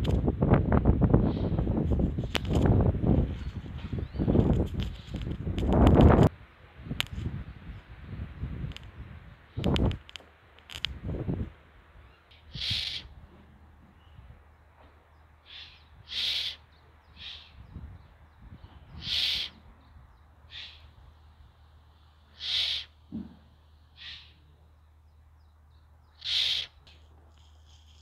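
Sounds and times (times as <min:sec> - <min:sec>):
owl hissing screeches: 0:12.3 - 0:13.1, 0:15.4 - 0:17.6, 0:19.0 - 0:19.6, 0:20.5 - 0:20.9, 0:22.3 - 0:23.0, 0:24.0 - 0:24.4, 0:26.2 - 0:26.9.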